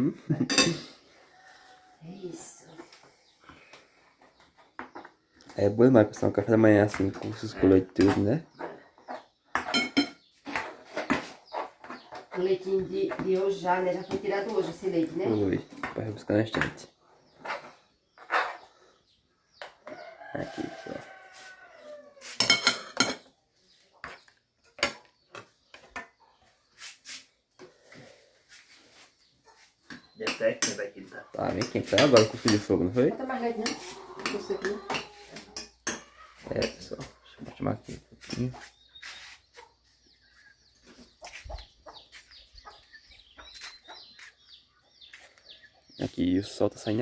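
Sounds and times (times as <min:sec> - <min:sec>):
dishes and cutlery clinking: 0:00.4 - 0:00.9, 0:09.5 - 0:11.2, 0:22.3 - 0:23.3, 0:30.2 - 0:32.7, 0:33.6 - 0:36.9
chickens clucking: 0:00.6 - 0:26.7, 0:27.6 - 0:47.0.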